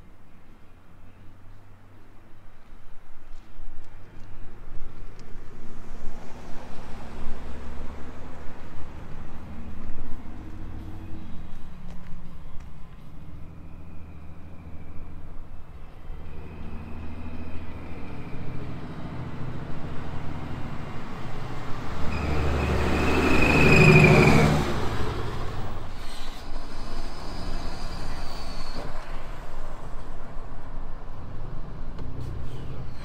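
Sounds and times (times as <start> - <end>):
engine and road noise inside cab: 0.0 - 33.0
pickup truck driving past: 16.3 - 25.9
high turbo whistle: 22.0 - 24.8.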